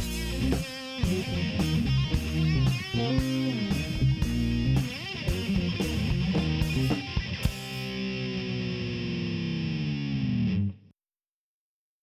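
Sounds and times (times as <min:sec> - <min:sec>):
drum hits: 0:00.0 - 0:07.9
distorted guitar chord ringing: 0:00.0 - 0:10.8.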